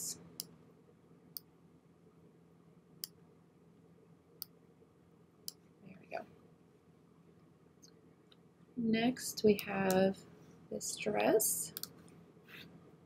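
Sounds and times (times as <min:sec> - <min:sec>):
computer mouse clicks: 0:11.7 - 0:12.2.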